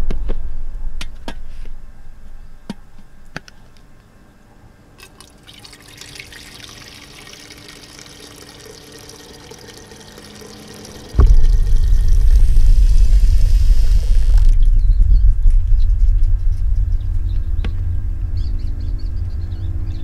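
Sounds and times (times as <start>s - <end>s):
water pouring into a jug: 5.0s - 14.7s.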